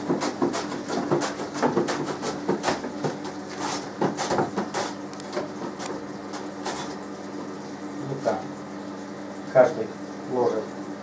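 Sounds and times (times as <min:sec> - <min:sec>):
onion scraping on vegetable slicer: 0:00.0 - 0:07.0.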